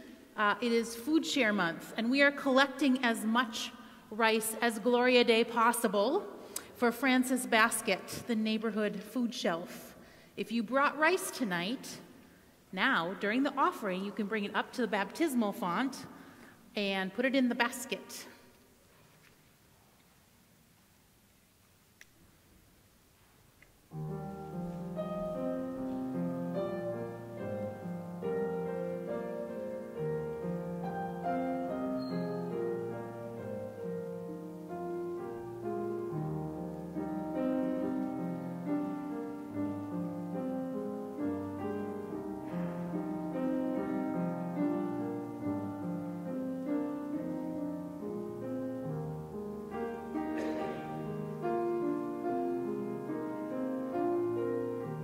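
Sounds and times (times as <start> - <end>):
solo piano playing: 23.9 - 55.0.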